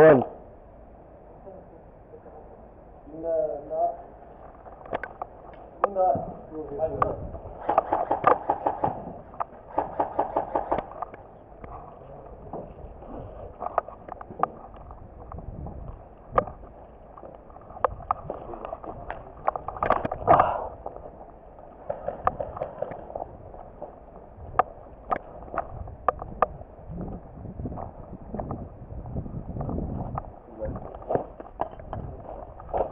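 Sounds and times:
steady rustling noise: 3.1s - 32.9s
gear clicking and knocking: 7.6s - 11.2s.

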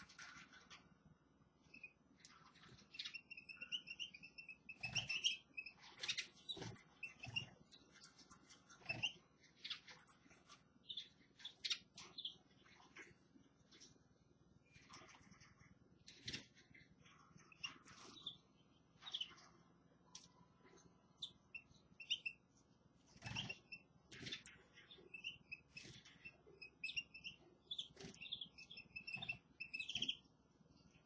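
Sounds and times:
finches chirping: 1.6s - 10.2s, 10.8s - 12.8s, 17.4s - 19.5s, 21.1s - 31.0s.

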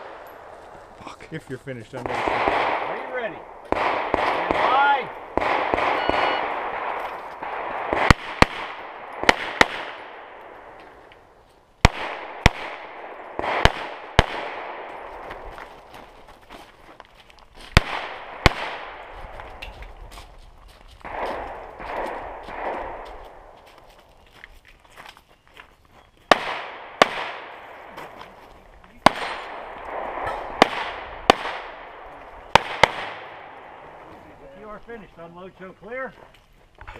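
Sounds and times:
pistol shots echoing: 2.0s - 11.0s, 11.8s - 15.2s, 17.8s - 19.1s, 21.0s - 23.6s, 26.3s - 28.2s, 29.0s - 34.0s.

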